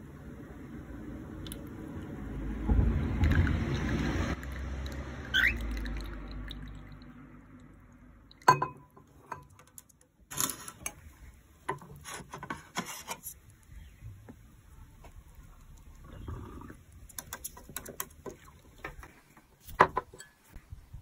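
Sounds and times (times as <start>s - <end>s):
tea pouring into glass cup: 3.2s - 7.2s
cockatiel chirp: 5.3s - 5.6s
glassware clink: 8.4s - 9.5s.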